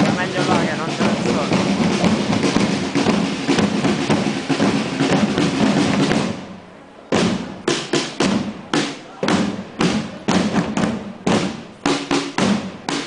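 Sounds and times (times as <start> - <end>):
marching drums rolling beat: 0.0 - 13.0
sharp single drum strokes: 7.1 - 13.0.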